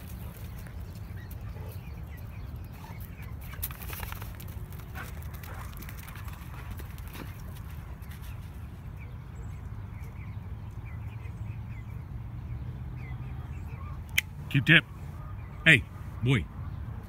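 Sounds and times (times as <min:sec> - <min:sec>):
paws thudding on dirt: 0:00.0 - 0:09.1.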